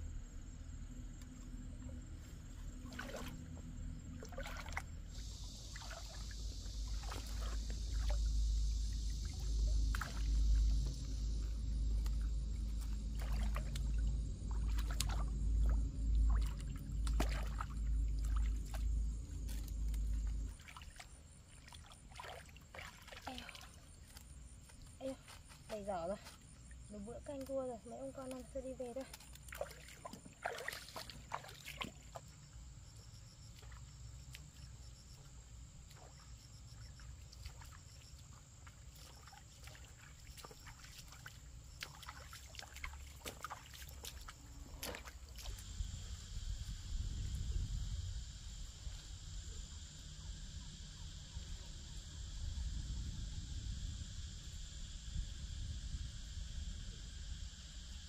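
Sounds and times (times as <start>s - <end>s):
low rumble: 0.0s - 20.6s
high-pitched insect chorus: 0.0s - 58.0s.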